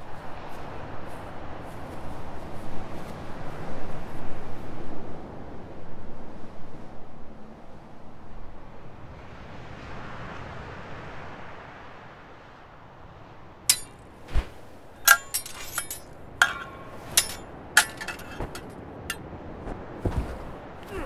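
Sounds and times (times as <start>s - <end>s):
wind: 0.0s - 21.0s
steel swords clashing: 13.7s - 13.9s, 15.0s - 18.7s.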